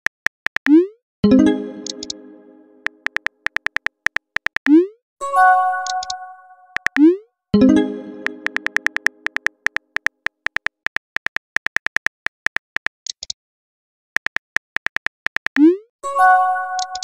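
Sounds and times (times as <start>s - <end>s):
phone keyboard typing clicks: 1.7s - 2.2s, 2.8s - 4.8s, 5.8s - 7.1s, 8.2s - 13.3s, 14.2s - 15.6s, 16.8s - 17.0s.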